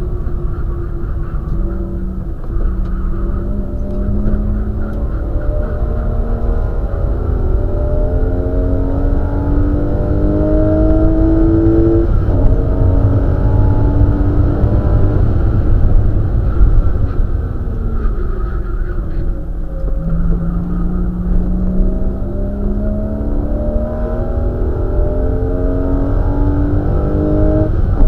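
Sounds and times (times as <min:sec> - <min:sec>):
race car engine revving: 0:00.0 - 0:28.0
road and wind rumble: 0:00.0 - 0:28.0.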